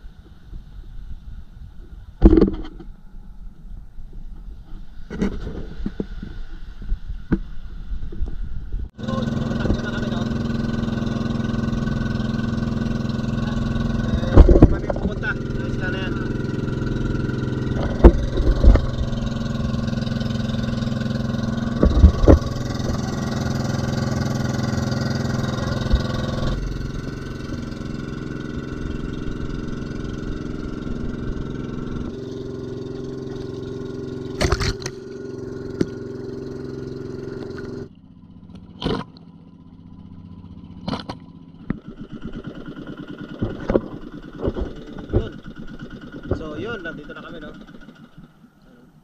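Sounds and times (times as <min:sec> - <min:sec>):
boat engine running: 0:00.0 - 0:49.0
loud knocks: 0:17.7 - 0:19.1.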